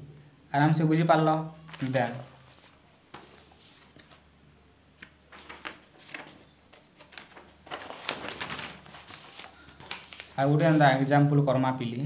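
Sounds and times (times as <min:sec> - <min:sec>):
paper rustling: 0:01.6 - 0:04.2, 0:05.0 - 0:11.4.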